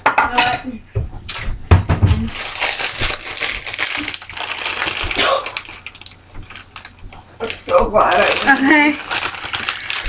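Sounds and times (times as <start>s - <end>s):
packaging crinkling: 2.2s - 10.0s.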